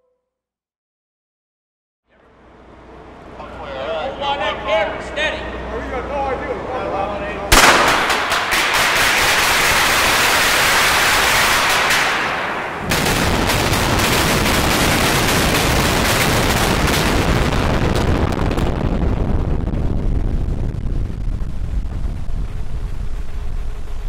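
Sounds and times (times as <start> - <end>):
loud hiss: 7.5 - 17.4
explosive charges cracking: 7.5 - 23.4
heavy blast with deep rumble: 7.5 - 24.0.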